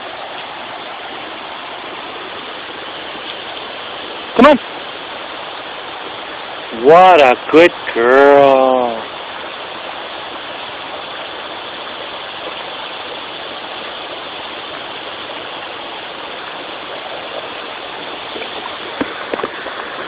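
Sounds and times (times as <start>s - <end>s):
river water rushing: 0.0s - 20.0s.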